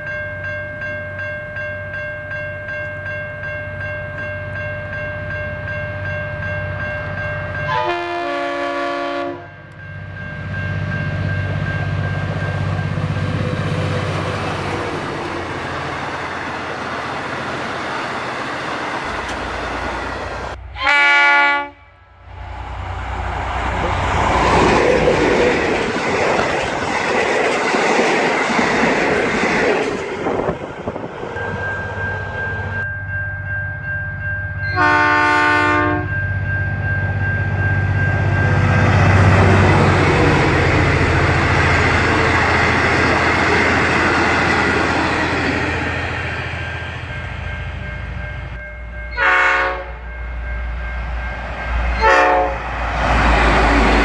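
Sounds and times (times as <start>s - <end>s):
train engine drone: 0.0s - 54.0s
train horn blasts: 7.7s - 9.8s, 20.6s - 22.1s, 34.7s - 36.2s, 49.1s - 50.1s, 52.0s - 52.7s
wheel and rail noise: 9.6s - 20.8s, 22.2s - 33.5s, 36.2s - 49.2s.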